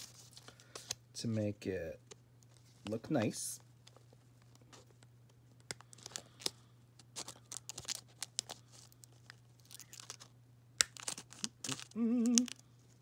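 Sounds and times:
paper tag crinkling: 0:05.8 - 0:10.3.

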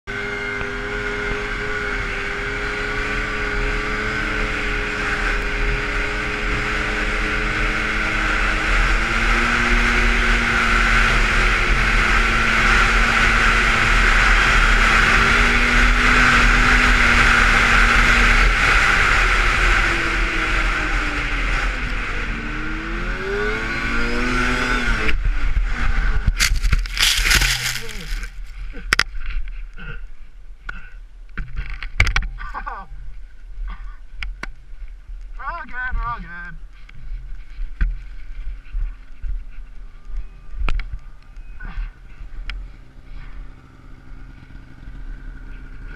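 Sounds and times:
snowmobile engine revving: 0:00.1 - 0:28.5
snowmobile track noise: 0:00.1 - 0:45.9.

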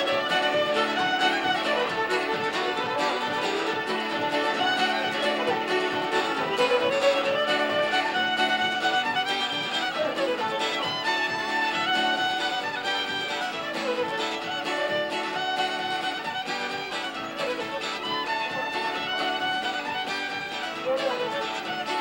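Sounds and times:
instrumental fiddle tune: 0:00.0 - 0:22.0.

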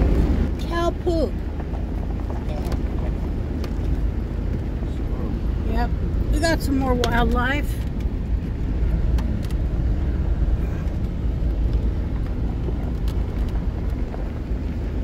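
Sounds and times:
truck engine and road rumble: 0:00.0 - 0:15.0.

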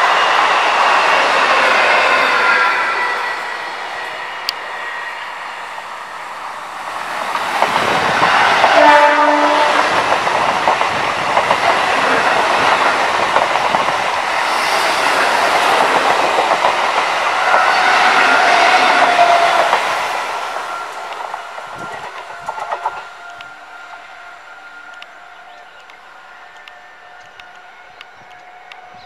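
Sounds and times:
trains passing at speed: 0:00.0 - 0:29.0
train horn blast: 0:08.0 - 0:10.1.

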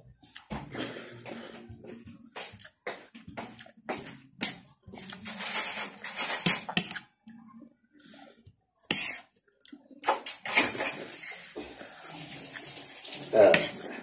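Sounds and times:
slurping noodles and soup: 0:08.0 - 0:09.8, 0:13.4 - 0:14.0.

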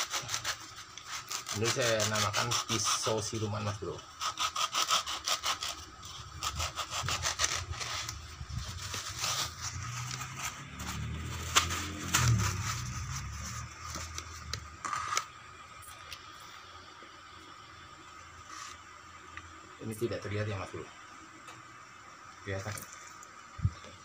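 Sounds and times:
blade sawing through styrofoam: 0:00.0 - 0:15.3
scraping and handling of foam: 0:00.0 - 0:15.3, 0:18.4 - 0:18.8.

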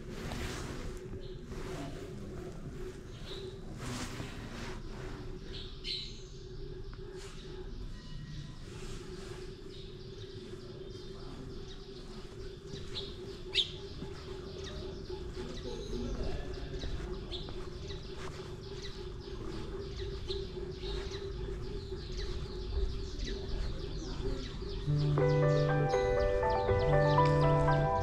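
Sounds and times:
small birds chirping: 0:00.0 - 0:28.0
steady low hum: 0:08.6 - 0:28.0.

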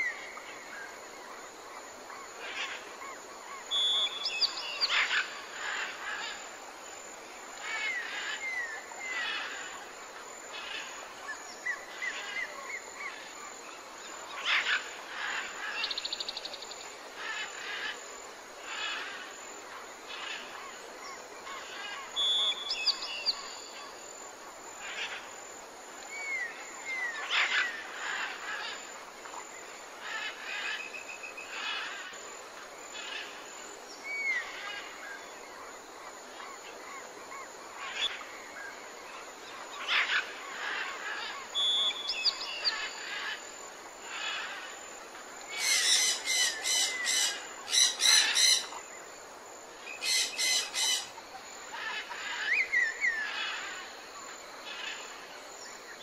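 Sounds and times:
outdoor ambience: 0:00.0 - 0:56.0
birds chirping and calling: 0:45.5 - 0:48.8, 0:49.9 - 0:53.8.

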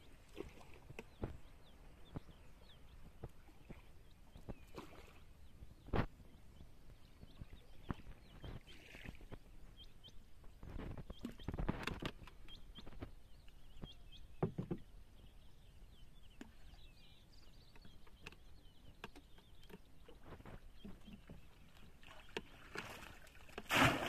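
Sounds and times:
water sloshing: 0:00.0 - 0:02.4, 0:17.9 - 0:24.0
small birds chirping: 0:00.0 - 0:23.6.

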